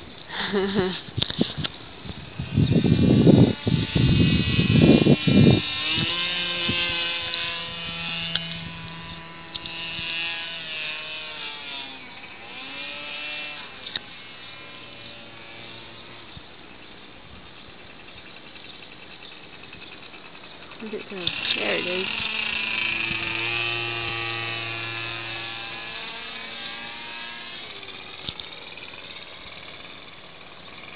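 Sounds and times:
small aircraft engine overhead: 0.0s - 30.9s
microphone noise bursts: 2.2s - 8.9s.

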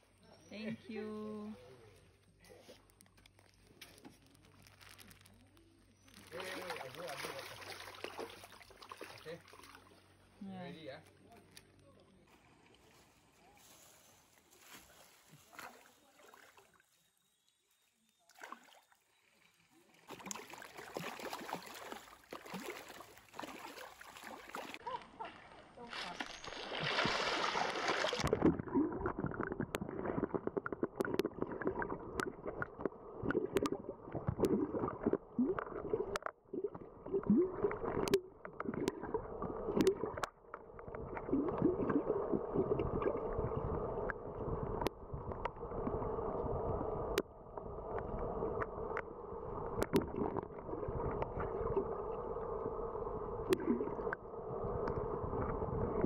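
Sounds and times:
water splashing: 2.6s - 10.4s, 14.1s - 16.9s, 18.3s - 19.0s, 19.6s - 52.7s, 53.4s - 56.0s
underwater gurgling rush: 26.6s - 56.0s
underwater sharp clicks: 28.2s - 36.4s, 37.6s - 39.1s, 49.7s - 50.5s.

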